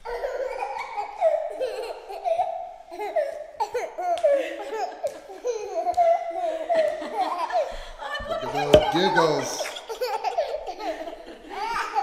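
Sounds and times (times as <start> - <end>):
toddler giggling: 0.1 - 7.7.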